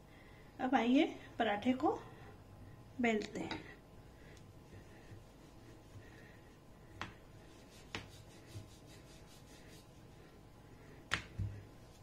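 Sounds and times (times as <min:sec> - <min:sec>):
rolling pin rubbing dough: 0:04.7 - 0:10.4.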